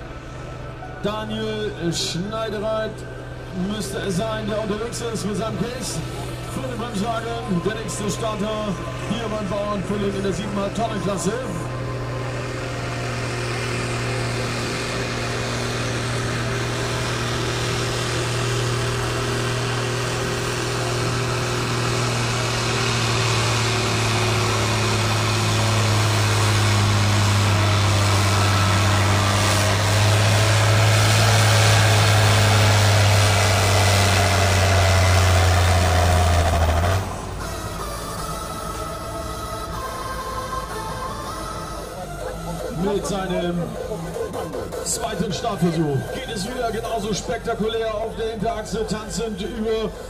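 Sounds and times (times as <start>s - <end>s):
tractor diesel engine running: 0.0s - 50.0s.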